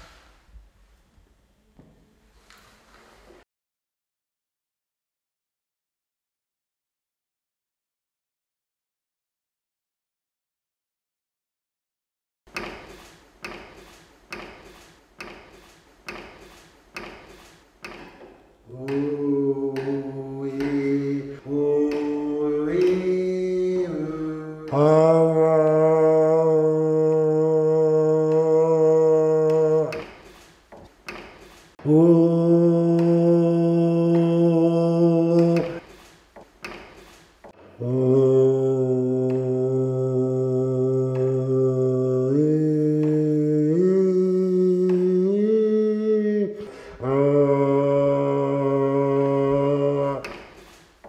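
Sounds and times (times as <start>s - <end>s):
man singing held vowel notes: 18.6s - 30.3s, 31.8s - 35.9s, 37.6s - 50.6s.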